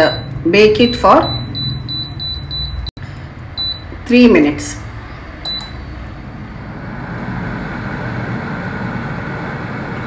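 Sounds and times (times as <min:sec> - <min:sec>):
short beep from touch panel: 0:03.6 - 0:03.9, 0:05.5 - 0:05.8
air fryer fan rushing: 0:05.3 - 0:10.0.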